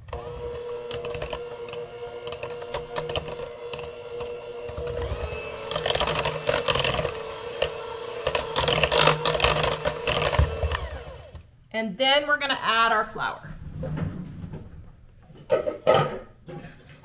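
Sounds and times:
electric hand mixer running: 0.0s - 11.4s.

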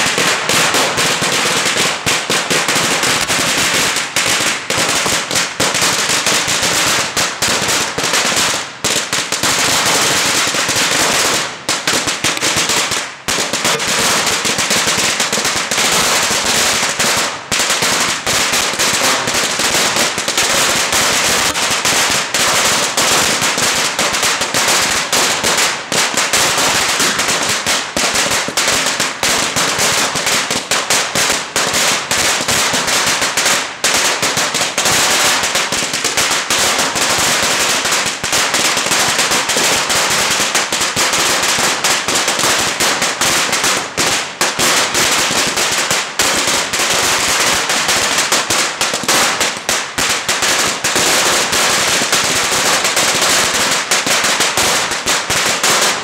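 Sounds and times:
firecrackers crackling: 0.0s - 56.0s.

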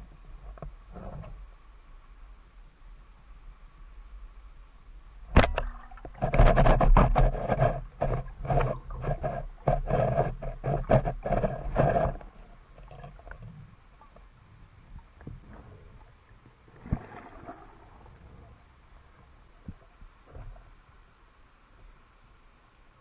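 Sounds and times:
fish struggling on speargun line: 5.4s - 13.7s.

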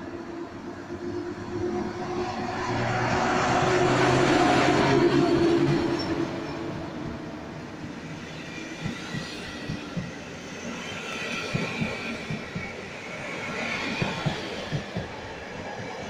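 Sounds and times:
train wheels clicking over rail joints: 8.3s - 16.0s.

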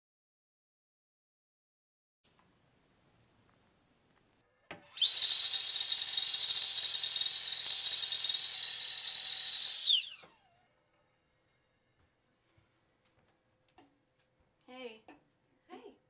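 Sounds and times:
kettle whistling: 4.7s - 11.9s.

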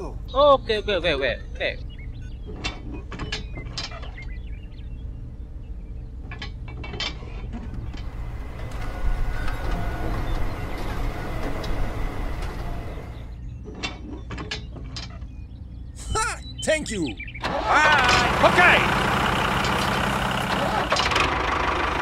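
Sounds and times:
steady low hum: 3.7s - 13.6s
whirring rattling mechanism hiss: 7.8s - 13.4s.

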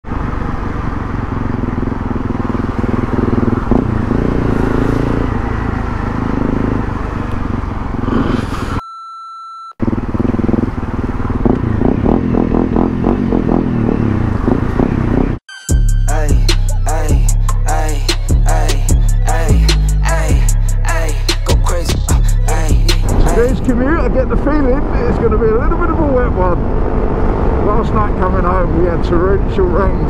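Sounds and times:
motorcycle engine running: 0.0s - 8.5s, 9.8s - 15.4s.

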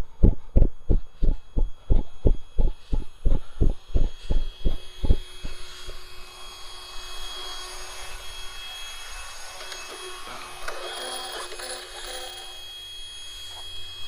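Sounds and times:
high-pitched whine with hiss: 0.0s - 14.0s.

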